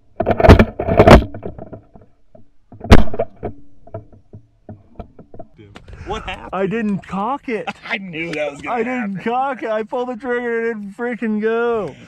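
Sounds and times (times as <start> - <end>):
man talking: 5.6 - 12.0.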